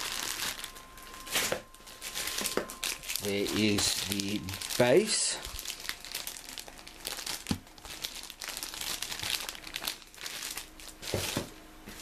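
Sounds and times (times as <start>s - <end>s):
plastic bags crinkling: 0.0s - 11.6s.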